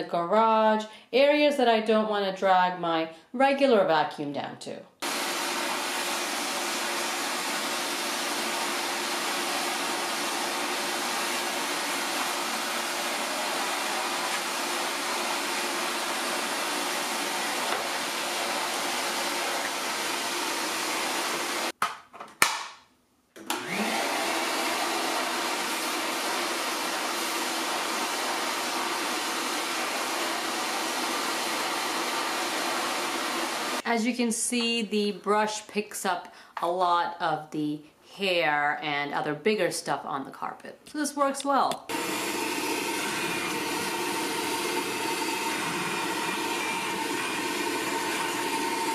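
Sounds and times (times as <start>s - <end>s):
shop vacuum running on carpet: 5.0s - 21.7s, 23.4s - 33.8s, 41.9s - 48.9s.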